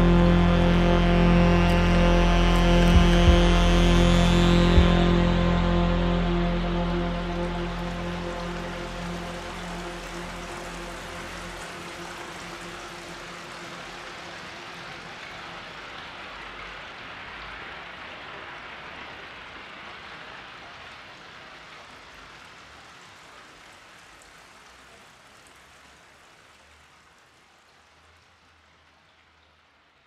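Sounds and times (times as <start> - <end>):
ambient electronic drone hiss: 0.0 - 20.8.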